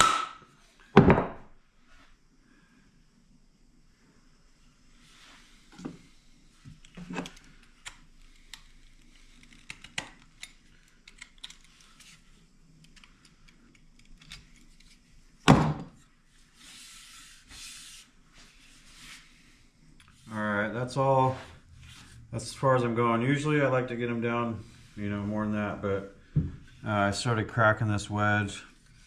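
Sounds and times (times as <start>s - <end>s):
tools knocking on workbench: 1.0s - 1.4s.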